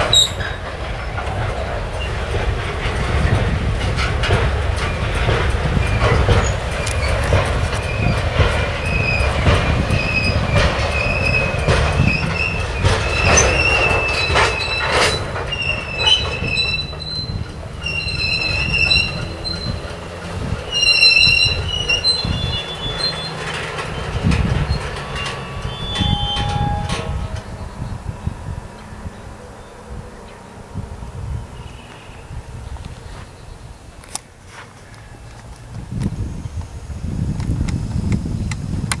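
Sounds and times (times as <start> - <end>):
wavering wheel squeal: 0.0 - 2.4, 4.8 - 33.8
train rolling rumble: 0.0 - 39.0
wheels clacking over rail joints: 0.0 - 39.0.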